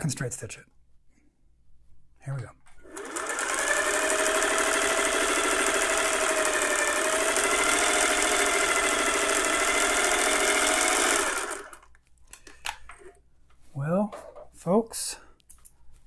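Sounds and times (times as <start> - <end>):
sewing machine stitching: 2.8 - 11.9.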